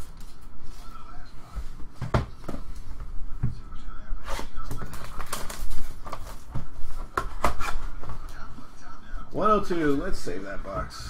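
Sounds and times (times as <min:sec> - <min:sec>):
plastic wrap tearing and crinkling: 0:04.8 - 0:06.2.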